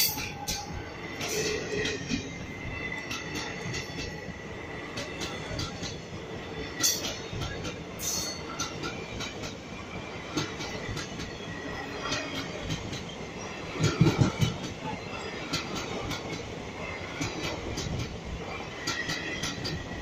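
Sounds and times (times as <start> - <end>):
train wheels clattering over rail joints: 4.9 - 20.0.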